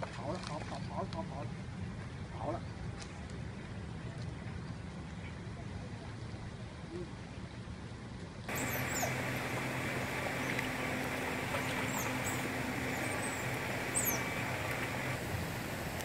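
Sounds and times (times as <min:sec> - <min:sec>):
even hiss: 0:08.5 - 0:16.0
low machine hum: 0:08.5 - 0:16.0.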